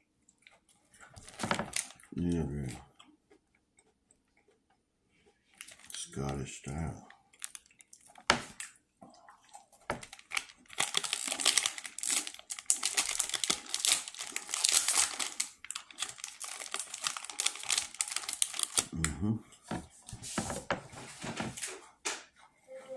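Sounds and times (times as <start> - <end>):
plastic wrapper crinkling: 1.0 - 2.0, 5.6 - 6.4, 7.3 - 8.7, 9.8 - 19.2.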